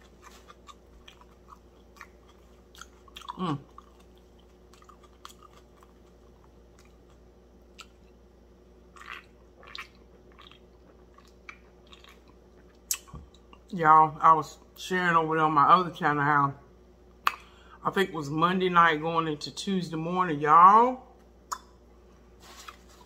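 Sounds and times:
chewing: 0:00.0 - 0:08.2, 0:08.9 - 0:13.7
wet mouth clicks: 0:21.5 - 0:21.7.

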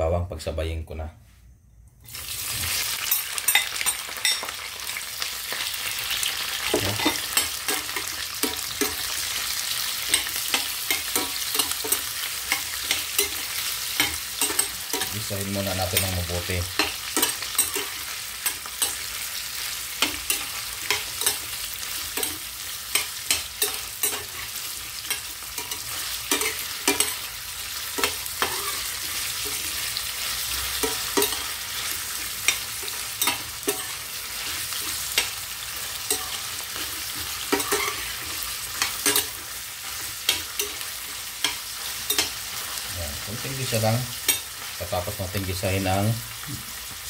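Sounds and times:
onion and garlic sizzling in oil: 0:02.1 - 0:47.0
metal spoon scraping pan: 0:06.2 - 0:42.9.

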